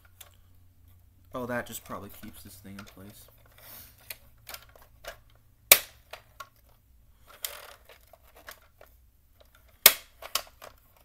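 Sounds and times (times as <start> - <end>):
hard plastic clicks and snaps: 1.7 - 3.4, 4.0 - 11.0
rustling scrape: 3.4 - 4.1.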